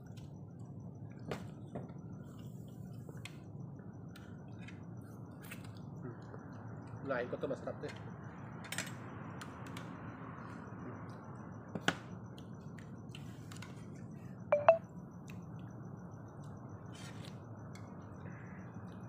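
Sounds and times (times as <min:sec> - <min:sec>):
ringing clinks: 0:14.6 - 0:14.8.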